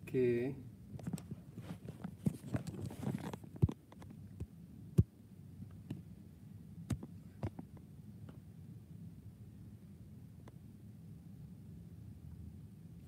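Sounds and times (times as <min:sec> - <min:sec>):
phone handling rustle: 0:01.0 - 0:04.2.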